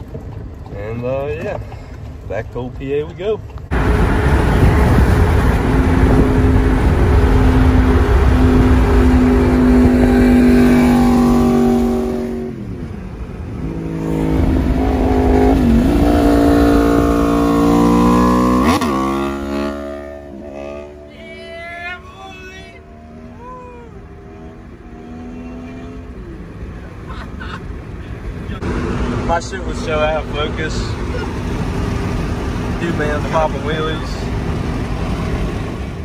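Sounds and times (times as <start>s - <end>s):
wind rushing over microphone: 3.7s - 19.3s
motorcycle engine revving: 3.7s - 21.2s, 22.7s - 26.6s.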